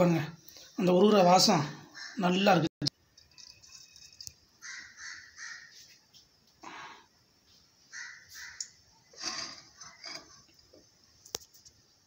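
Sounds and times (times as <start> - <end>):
crow cawing: 1.9 - 2.4, 4.6 - 5.8, 7.9 - 8.8.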